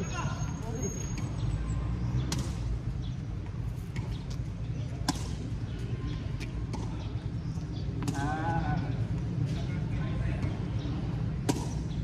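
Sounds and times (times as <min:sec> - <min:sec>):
tennis ball struck by rackets: 0:02.2 - 0:02.8, 0:03.9 - 0:05.6, 0:06.3 - 0:07.1, 0:07.9 - 0:08.4, 0:11.3 - 0:12.0.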